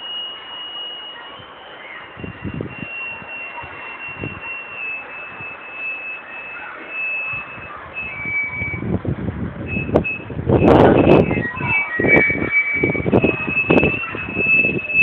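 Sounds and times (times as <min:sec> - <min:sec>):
windmill squeaking whistle: 0:00.0 - 0:09.0, 0:09.6 - 0:15.0
wind rumbling on microphone: 0:01.4 - 0:15.0.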